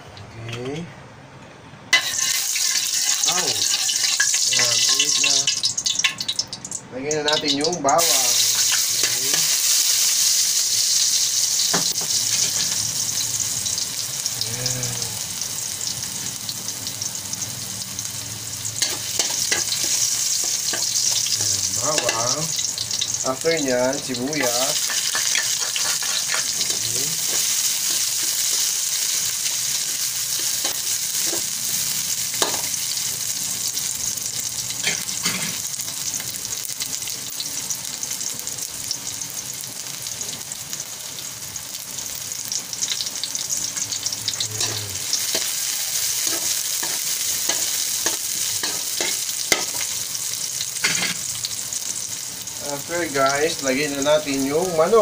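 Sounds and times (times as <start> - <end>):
onion sizzling in hot oil: 1.9 - 55.0
spatula scraping a wok: 2.0 - 5.0, 18.8 - 22.2, 24.4 - 33.1, 34.8 - 35.7, 43.8 - 50.0, 50.8 - 51.3.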